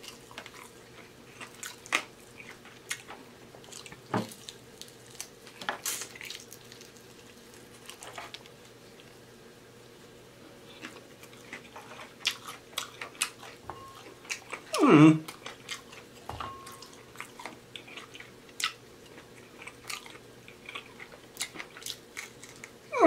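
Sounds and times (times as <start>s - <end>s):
chewing and smacking: 0.0s - 9.2s, 10.7s - 22.8s
person humming: 14.7s - 15.3s.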